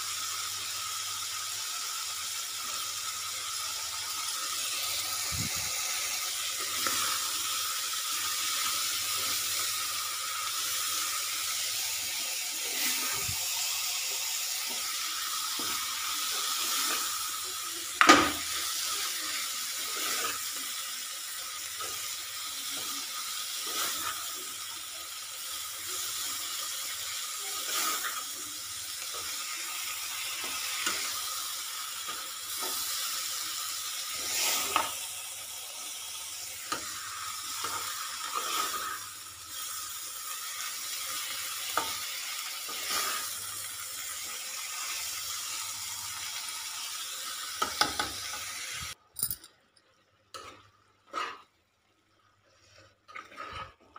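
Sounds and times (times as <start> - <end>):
vegetables sizzling in a pan: 0.0 - 49.0, 49.9 - 53.9
spatula scraping a pan: 18.7 - 21.0, 21.7 - 24.4, 26.0 - 35.0, 36.6 - 43.5, 50.3 - 51.6, 52.5 - 53.9.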